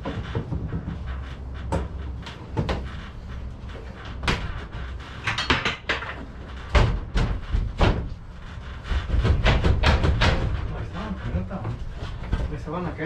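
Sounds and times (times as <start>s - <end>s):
heavy thumps: 0.0s - 13.0s
plastic panels knocking and clattering: 4.2s - 4.6s, 5.2s - 8.2s, 8.8s - 12.6s.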